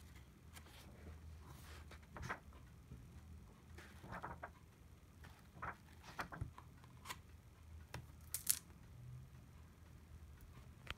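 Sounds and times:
book pages turning: 3.8s - 4.6s.

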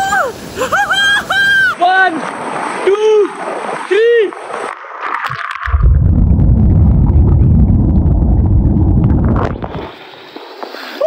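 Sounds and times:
water splash: 2.1s - 10.5s
muffled churning waterfall rumble: 5.6s - 10.0s.

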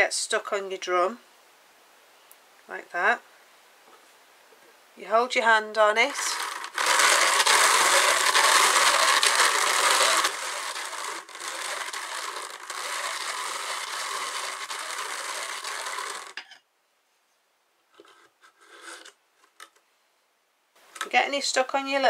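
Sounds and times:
hand-cranked drum carder gears: 6.1s - 16.4s.

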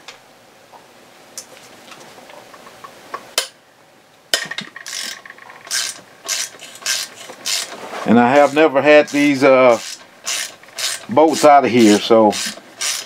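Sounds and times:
ratcheting wrench clicking: 4.4s - 7.8s, 8.4s - 13.0s.

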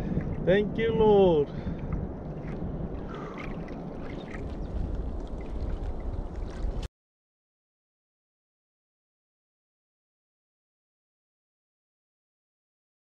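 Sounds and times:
wind on microphone: 0.0s - 6.9s
water sloshing around canoe: 1.4s - 6.9s.

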